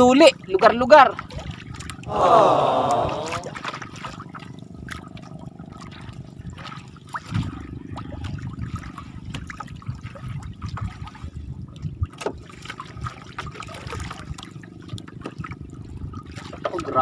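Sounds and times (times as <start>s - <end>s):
low wind rumble: 0.0s - 17.0s
water splashing and trickling: 0.0s - 17.0s
small knocks on canoe: 12.1s - 12.8s.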